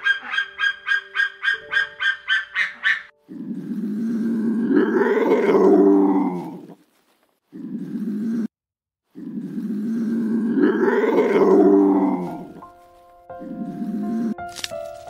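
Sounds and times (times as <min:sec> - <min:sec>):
large animal deep call: 0:03.2 - 0:06.8, 0:09.1 - 0:12.6, 0:13.4 - 0:14.5.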